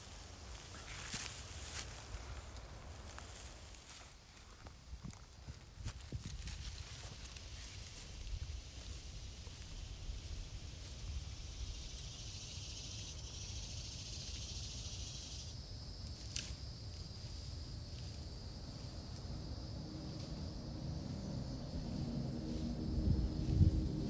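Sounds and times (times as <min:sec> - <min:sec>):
insects hissing: 0:00.0 - 0:04.1, 0:06.0 - 0:24.0
low sustained music tones: 0:17.3 - 0:24.0
low rumble: 0:18.3 - 0:24.0.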